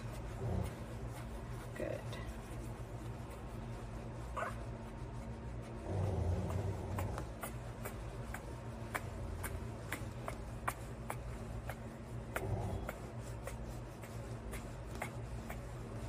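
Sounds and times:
steady low hum: 0.0 - 16.0
puppy grunt: 0.2 - 1.1, 4.3 - 4.7, 5.7 - 15.7.

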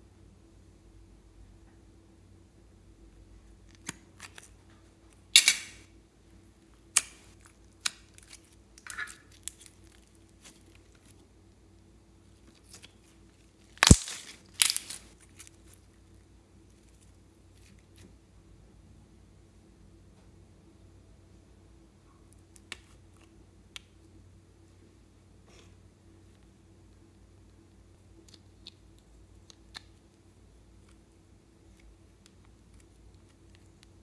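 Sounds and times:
slime popping and clicking: 13.8 - 15.0.

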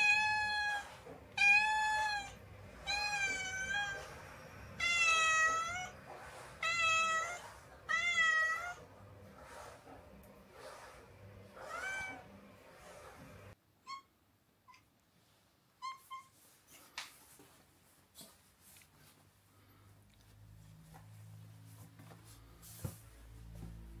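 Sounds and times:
cat meowing: 0.0 - 4.2, 4.8 - 6.0, 6.6 - 8.8, 11.6 - 12.3.

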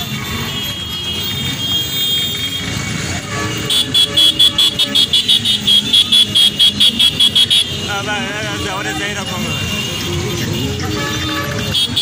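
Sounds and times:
motorcycle engines running: 0.0 - 12.0
electronic horn beeping rapidly: 0.4 - 12.0.

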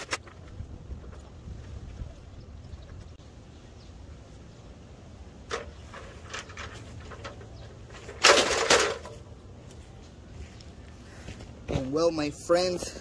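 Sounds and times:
wind rumble on microphone: 0.2 - 3.3
ladder scraping rattle: 5.5 - 9.3.

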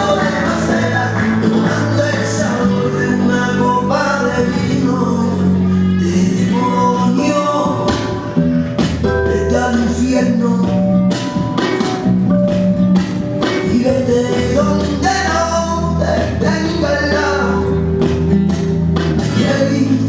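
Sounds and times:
person singing: 0.0 - 11.4, 13.4 - 18.1, 19.2 - 20.0
flamenco guitar: 0.0 - 20.0.

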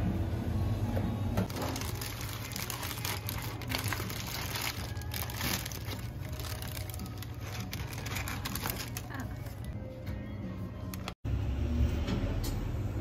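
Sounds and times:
paper bag crinkling: 1.5 - 9.8.

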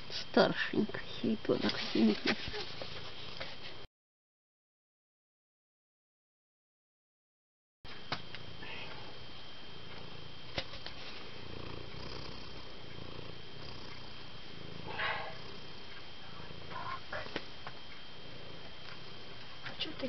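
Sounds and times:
cat purring: 0.5 - 3.8, 8.3 - 20.0.

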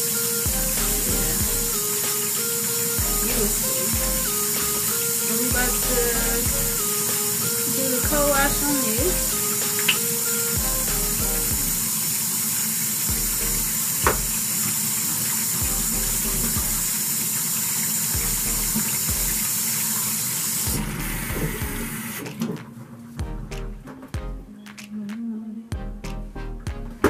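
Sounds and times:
tap water running into sink: 11.8 - 22.6.

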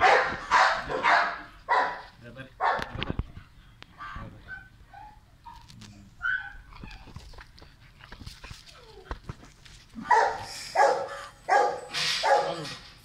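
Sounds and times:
dog barking: 0.0 - 2.9, 10.0 - 12.6.

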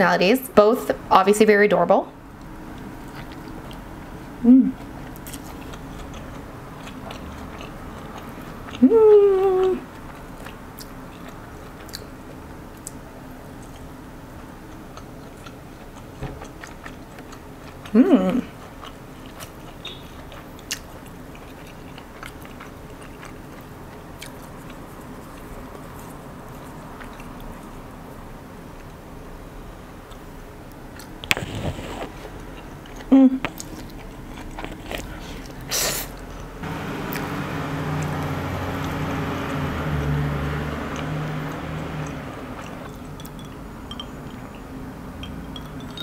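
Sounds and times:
low mechanical hum: 0.0 - 46.0
soft chewing: 2.4 - 3.9, 4.6 - 27.8, 30.0 - 39.7, 40.6 - 46.0
chewing and utensil clicks: 5.1 - 8.8, 40.9 - 46.0
slurping spaghetti: 31.3 - 32.3.

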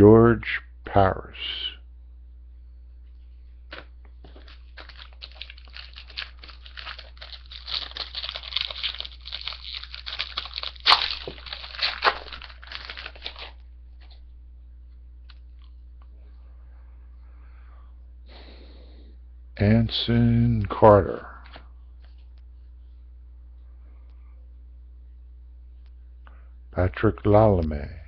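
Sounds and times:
foil wrapper tearing and crinkling: 4.3 - 13.6.

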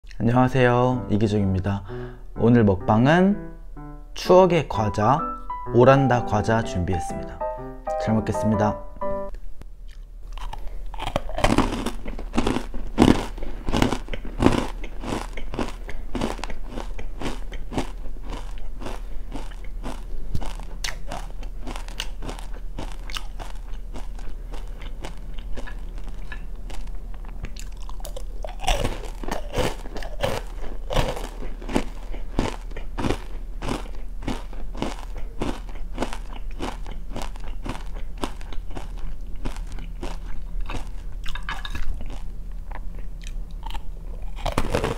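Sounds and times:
crunching and chewing snack: 9.8 - 44.9.

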